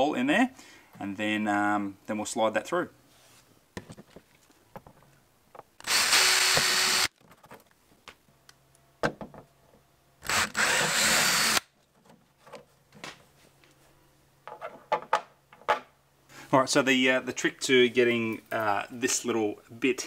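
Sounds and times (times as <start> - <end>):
power drill boring through plastic: 5.8 - 7.1, 10.2 - 11.7.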